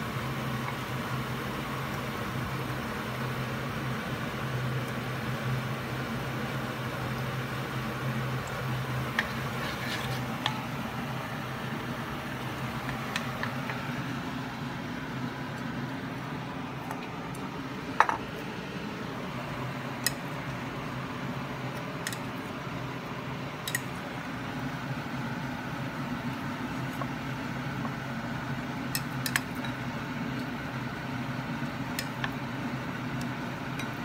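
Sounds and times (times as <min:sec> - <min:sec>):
shrimp frying in hot oil: 0:00.0 - 0:15.5.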